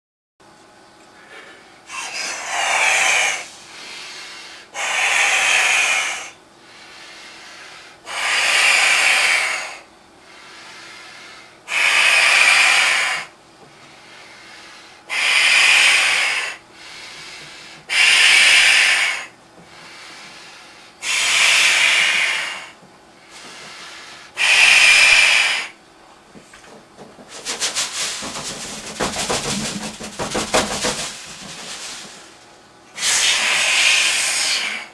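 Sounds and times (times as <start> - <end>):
balloon fluttering hiss: 2.1 - 3.7, 21.0 - 25.8, 27.2 - 34.9
breaths blown into balloon: 15.1 - 25.8, 33.0 - 34.9
intake of breath: 16.1 - 18.0, 19.2 - 25.8.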